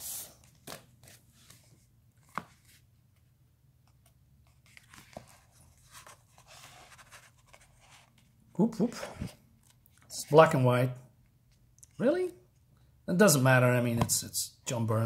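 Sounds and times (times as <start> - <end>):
paper rustling: 4.0 - 8.3.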